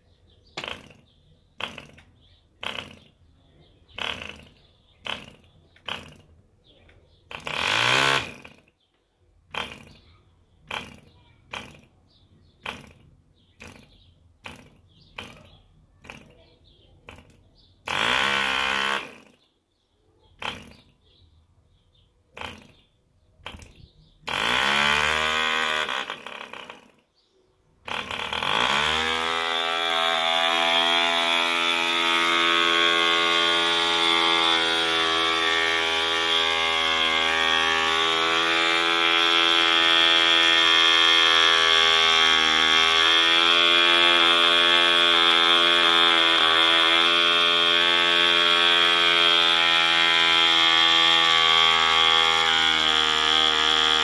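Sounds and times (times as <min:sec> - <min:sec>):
model engine running: 0:04.0 - 0:06.3, 0:07.3 - 0:08.7, 0:09.5 - 0:10.1, 0:10.7 - 0:11.9, 0:12.6 - 0:16.4, 0:17.0 - 0:19.5, 0:20.4 - 0:20.9, 0:23.4 - 0:27.0, 0:27.8 - 0:54.0.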